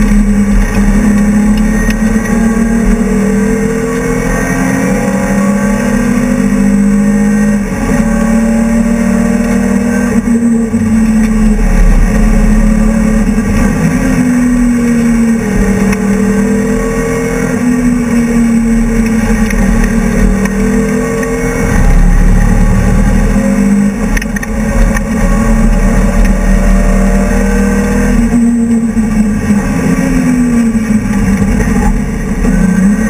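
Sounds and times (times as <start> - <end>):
race car engine revving: 0.0 - 33.0
road and wind noise: 0.0 - 33.0.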